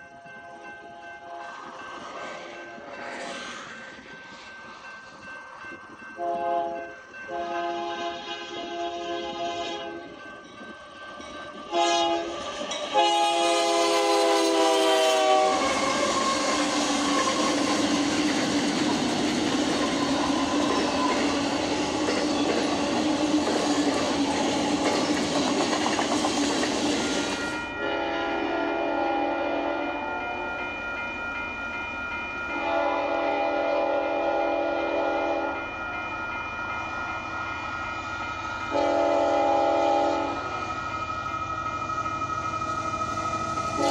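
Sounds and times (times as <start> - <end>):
wheels clacking on rails: 0.0 - 27.8
train running past: 0.0 - 43.9
locomotive air horn blasts: 6.2 - 10.0, 11.7 - 16.5, 27.4 - 30.5, 32.5 - 35.6, 38.7 - 40.5
distant train horn: 6.2 - 10.2, 11.5 - 18.0, 27.0 - 30.6, 32.5 - 35.7, 38.6 - 40.7, 43.6 - 43.9.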